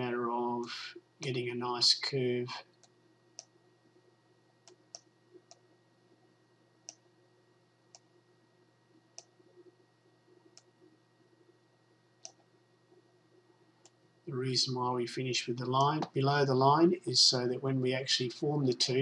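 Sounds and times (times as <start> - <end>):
faint steady hum: 0.0 - 19.0
computer mouse clicking: 4.6 - 5.6, 6.8 - 7.1, 10.5 - 10.7, 12.2 - 12.5.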